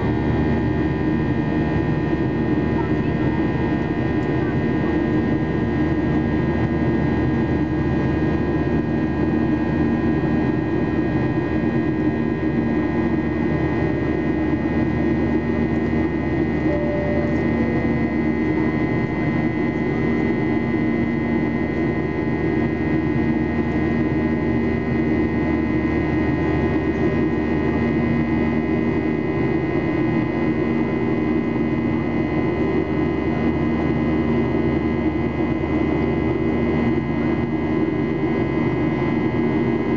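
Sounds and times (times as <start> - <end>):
airplane cabin drone: 0.0 - 39.9.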